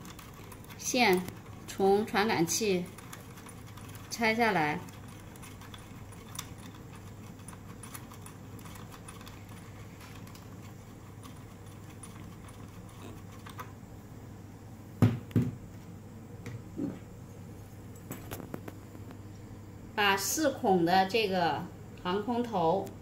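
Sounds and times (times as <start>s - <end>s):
faint steady hum: 0.0s - 23.0s
housing thumping on desk: 15.0s - 15.6s.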